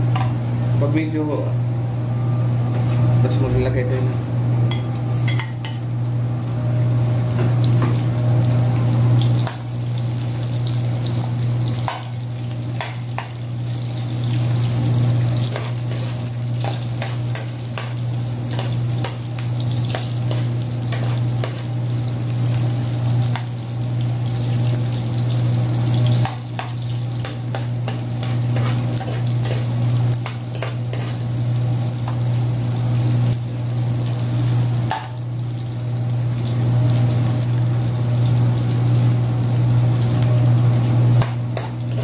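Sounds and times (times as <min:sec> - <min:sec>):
onions sizzling in a frying pan: 0:04.7 - 0:42.0
metal spoon scraping a pan: 0:19.9 - 0:21.7, 0:26.2 - 0:31.2.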